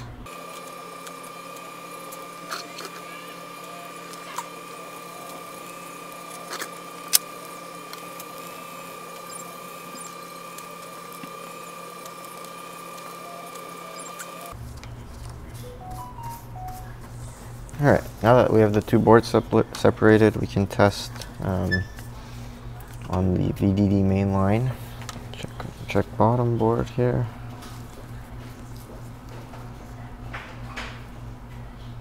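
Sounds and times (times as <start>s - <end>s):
high-pitched electrical whine: 0.2s - 14.6s.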